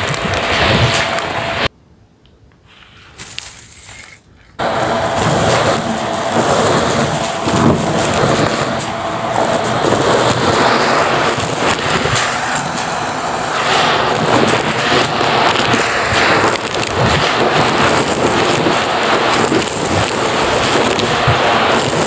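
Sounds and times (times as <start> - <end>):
debris crackling up nozzle: 0.0 - 1.7, 3.2 - 22.0
handling noise: 3.1 - 22.0
vacuum cleaner running: 4.6 - 22.0.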